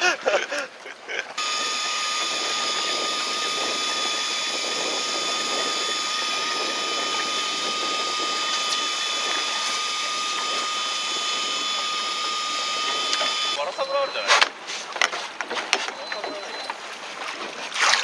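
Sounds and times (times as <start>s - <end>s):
electric fishing reel motor whining: 1.4s - 13.6s.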